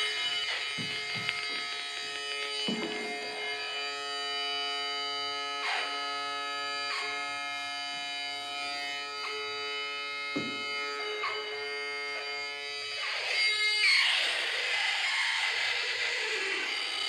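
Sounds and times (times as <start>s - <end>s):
buzzing electronic drone chord: 0.0s - 17.0s.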